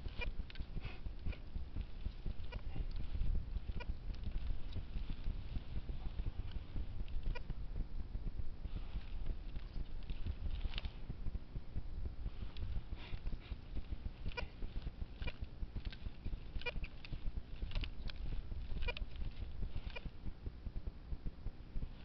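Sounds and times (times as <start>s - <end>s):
metal detector chirps: 0.0s - 7.6s, 12.5s - 20.2s
low rumble: 0.0s - 22.0s
metal detector clicks: 12.5s - 20.2s.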